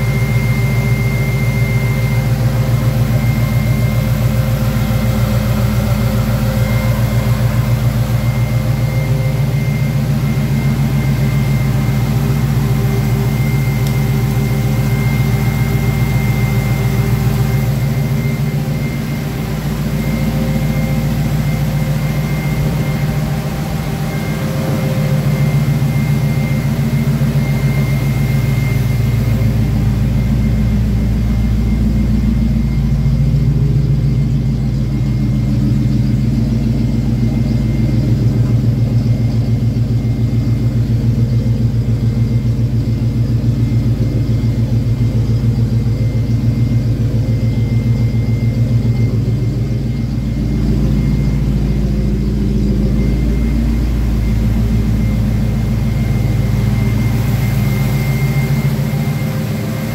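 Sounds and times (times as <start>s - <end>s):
car engine idling: 0.0s - 59.9s
faint high-pitched tone: 0.0s - 59.9s.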